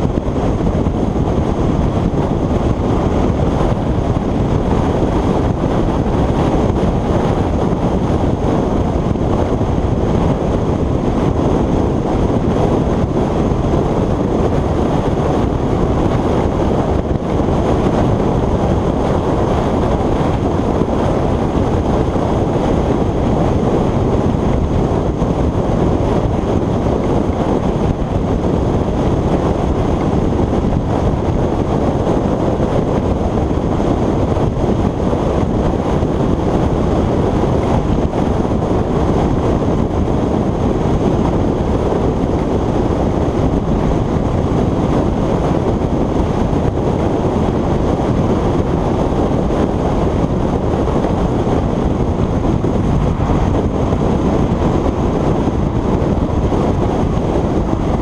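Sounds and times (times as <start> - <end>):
wind over microphone: 0.0 - 58.0
road and traffic noise: 48.1 - 56.1.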